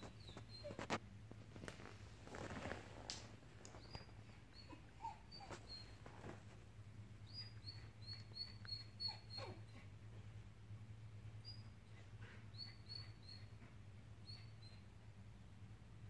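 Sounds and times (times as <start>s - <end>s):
dog whining: 0.0s - 1.0s, 3.7s - 6.5s, 7.3s - 10.0s, 11.4s - 14.8s.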